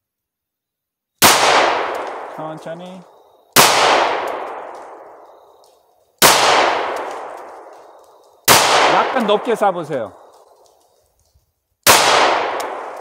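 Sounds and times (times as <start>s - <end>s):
handgun shots with echo: 3.6s - 5.3s, 6.2s - 7.8s, 8.5s - 9.5s, 11.9s - 13.0s.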